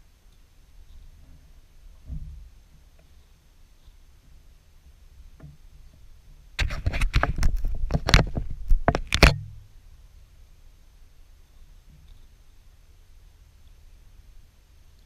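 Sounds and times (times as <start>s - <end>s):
knocks and rattling on plastic canoe: 6.6s - 9.6s.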